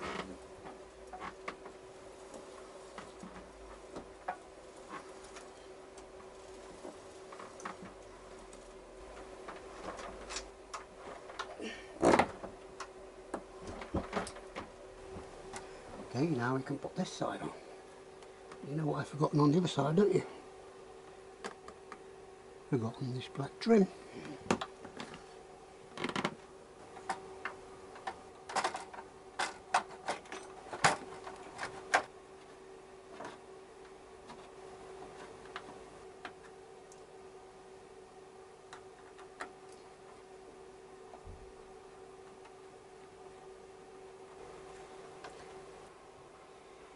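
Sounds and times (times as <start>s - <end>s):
faint steady hum: 0.0s - 46.9s
clicks and knocks of parts handled: 26.9s - 34.5s.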